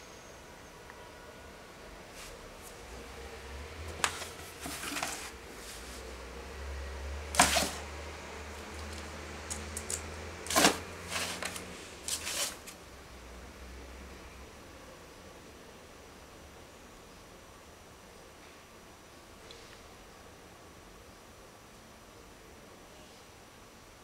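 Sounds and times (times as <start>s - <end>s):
cardboard box knocked on wooden floor: 7.4s - 7.8s.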